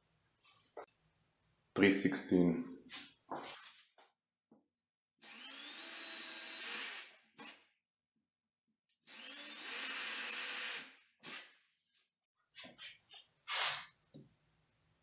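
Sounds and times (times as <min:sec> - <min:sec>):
cordless drill whining: 0:05.2 - 0:07.6, 0:09.1 - 0:11.5.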